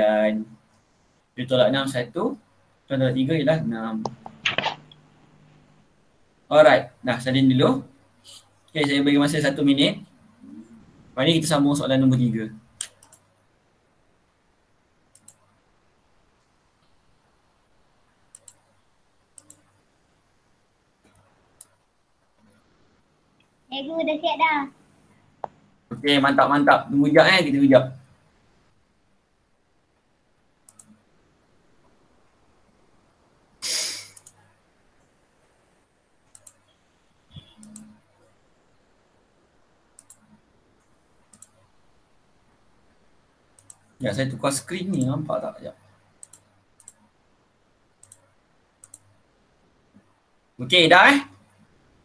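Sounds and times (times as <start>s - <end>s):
faint background hiss: 0.0s - 52.0s
sharp clicks in pairs: 12.8s - 13.3s, 15.1s - 15.4s, 18.3s - 18.6s, 19.4s - 19.7s, 30.7s - 31.0s, 34.1s - 34.4s, 36.3s - 36.6s, 40.0s - 40.3s, 41.3s - 41.6s, 43.6s - 43.9s, 46.2s - 47.0s, 48.0s - 49.1s.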